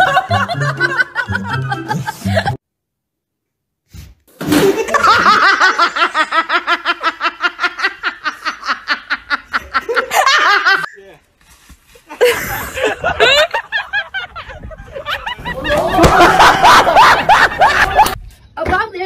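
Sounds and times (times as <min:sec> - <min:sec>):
person laughing hard: 0:00.0 - 0:02.6, 0:12.1 - 0:18.2.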